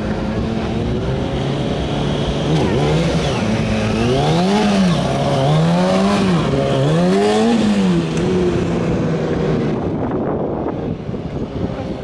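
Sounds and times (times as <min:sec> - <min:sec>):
motorcycle engine revving: 0:00.0 - 0:10.8.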